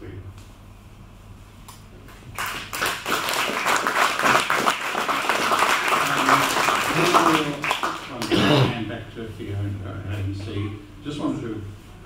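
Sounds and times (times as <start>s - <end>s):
audience applauding: 2.2s - 8.4s.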